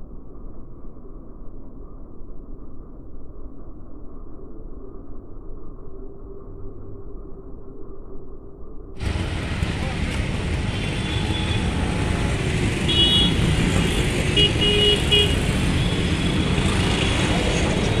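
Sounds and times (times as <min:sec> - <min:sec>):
road traffic rumble: 0:09.0 - 0:18.0
vehicle horn toots: 0:12.8 - 0:16.5.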